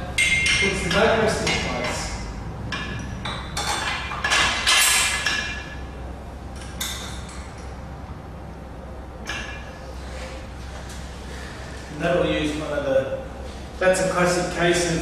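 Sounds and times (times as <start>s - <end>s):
metal frame parts knocking: 0.1s - 5.8s.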